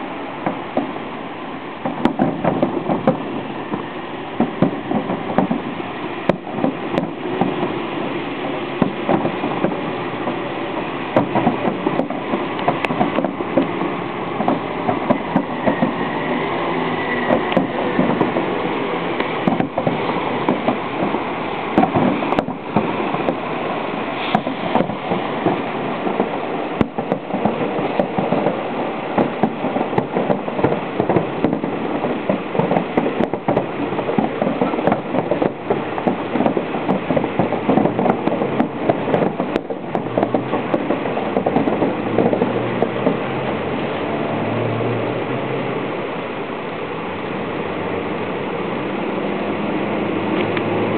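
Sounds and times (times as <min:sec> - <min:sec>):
fireworks booming and crackling: 0:00.0 - 0:50.9
sharp firework bangs: 0:01.8 - 0:07.9, 0:08.6 - 0:10.5, 0:17.1 - 0:43.2.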